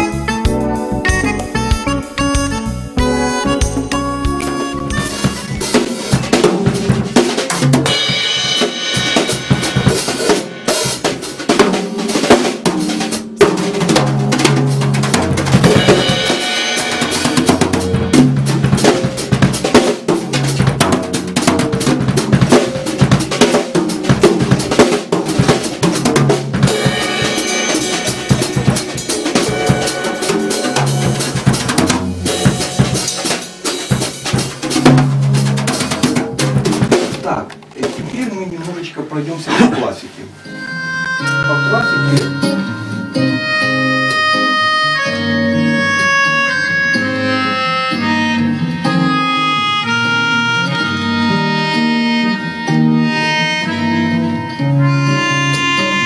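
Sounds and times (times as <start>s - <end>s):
drum kit playing: 0.0s - 56.0s
low repeating part: 26.7s - 33.0s.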